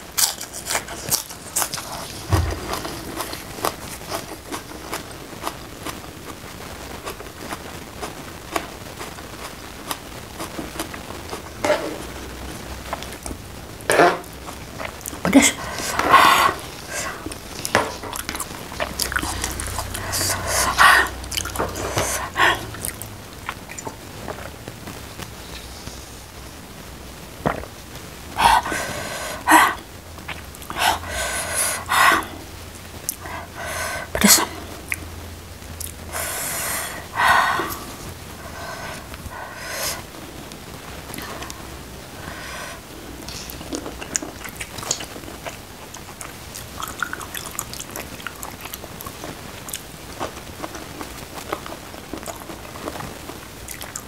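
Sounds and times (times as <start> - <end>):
steady hiss: 0.0 - 54.0
wet chewing clicks: 14.4 - 24.5, 35.8 - 36.0, 43.3 - 54.0.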